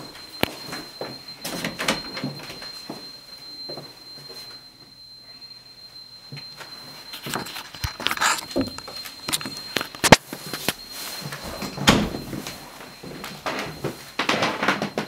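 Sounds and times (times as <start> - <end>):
faint high-pitched tone: 0.0 - 15.0.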